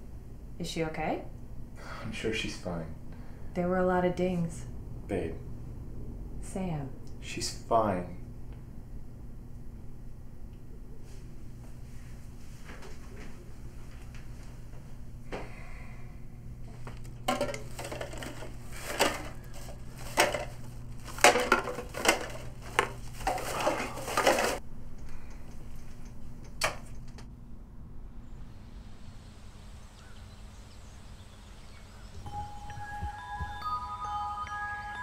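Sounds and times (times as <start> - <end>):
plastic cups clattering: 17.2 - 24.6.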